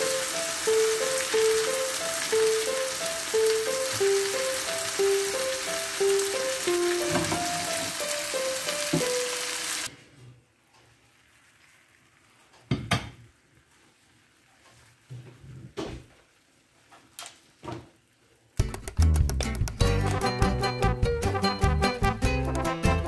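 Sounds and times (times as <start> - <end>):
gentle background music: 0.0 - 9.9
meat sizzling in hot oil: 0.0 - 9.9.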